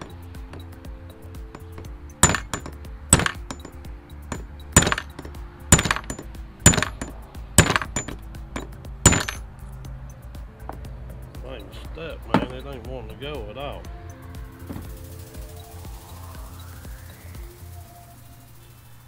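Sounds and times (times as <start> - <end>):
hammer striking steel punch: 1.5 - 9.4, 12.3 - 12.7.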